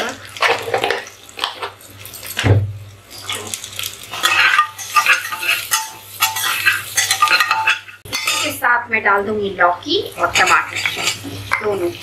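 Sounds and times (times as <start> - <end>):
onions frying in oil: 0.0 - 12.0
spatula scraping metal pot: 4.1 - 8.6, 10.2 - 11.8.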